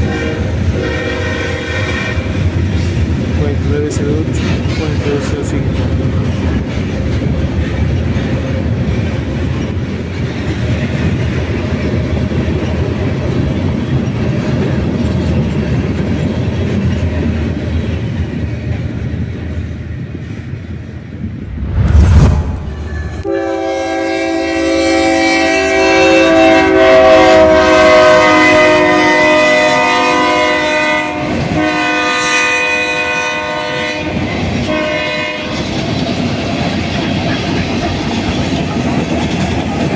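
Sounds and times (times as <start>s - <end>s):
locomotive air horn chord: 0.0s - 2.2s, 23.2s - 34.1s, 34.7s - 35.5s
freight train rumbling: 0.0s - 39.9s
loud low thump: 21.4s - 23.3s.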